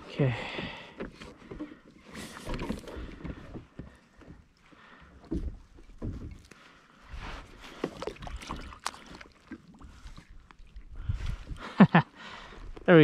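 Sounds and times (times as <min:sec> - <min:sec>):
water splashing: 0:04.6 - 0:11.9.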